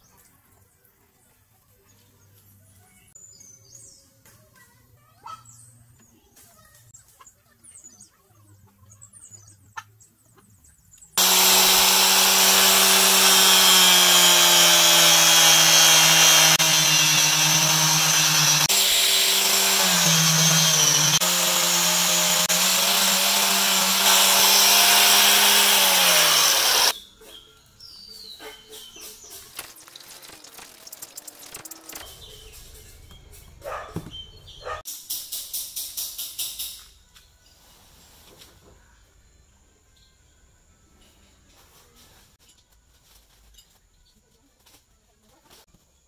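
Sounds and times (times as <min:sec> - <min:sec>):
angle grinder cutting metal: 0:11.2 - 0:26.9.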